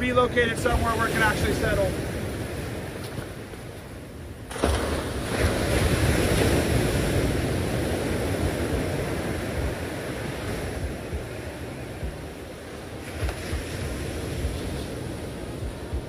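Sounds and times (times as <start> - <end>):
wind buffeting microphone: 0.0 - 16.0
surf breaking on boulders: 4.5 - 7.4.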